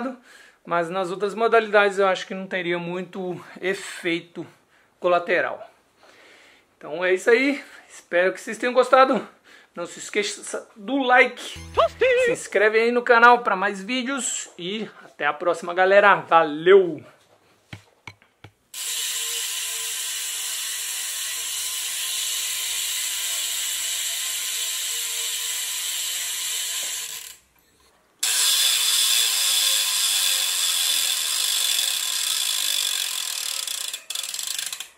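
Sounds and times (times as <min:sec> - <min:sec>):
bicycle hub clicking buzz: 0:18.7 - 0:27.5, 0:28.2 - 0:34.9.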